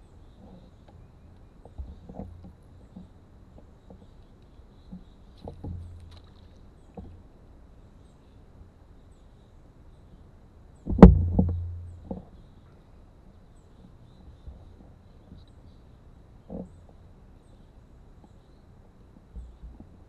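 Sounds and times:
knocks on canoe hull: 10.9 - 12.2.

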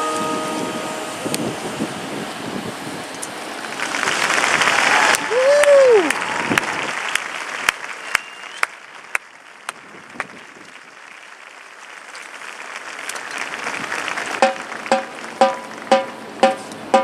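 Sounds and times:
crowd applauding: 3.6 - 16.1
sharp single claps: 14.4 - 17.0.

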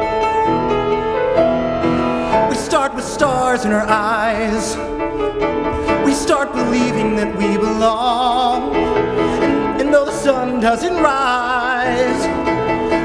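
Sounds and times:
instrumental accompaniment: 0.0 - 13.0
man singing: 2.4 - 5.2, 5.8 - 13.0.

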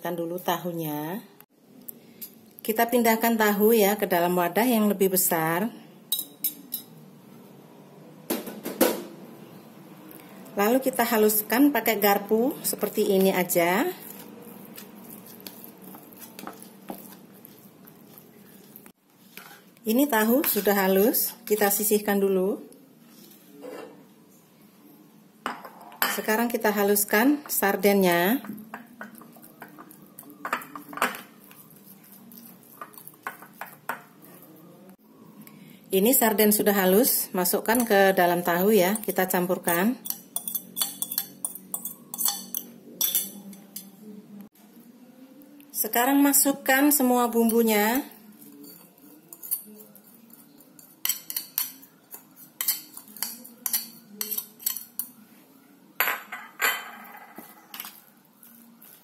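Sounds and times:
fork scraping ceramic plate: 19.3 - 19.7
fork clinking on porcelain plate: 40.0 - 43.9, 48.6 - 55.1.

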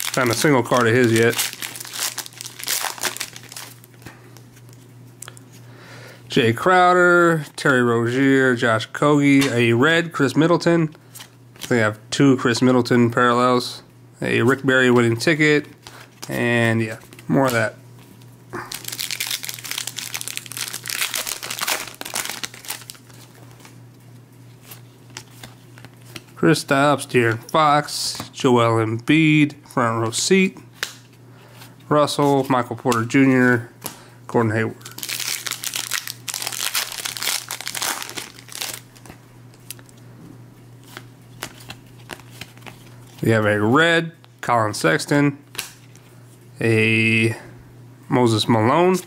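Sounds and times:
foil wrapper crinkling: 0.0 - 5.4, 18.6 - 23.8, 34.8 - 40.0.

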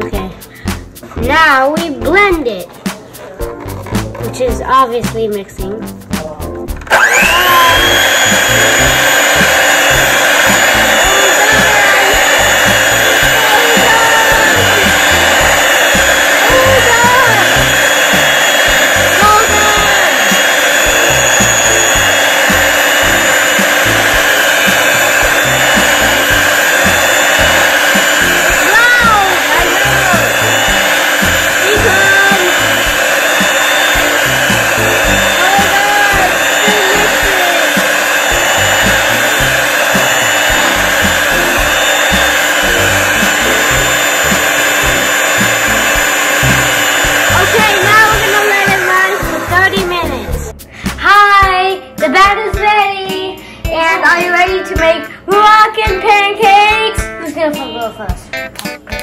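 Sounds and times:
electric hand mixer whisking batter: 6.9 - 50.5.

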